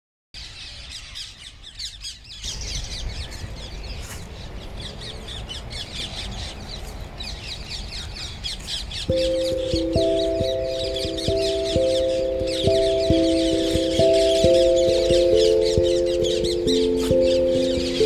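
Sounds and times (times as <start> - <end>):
parakeets squawking: 9.2 - 18.0.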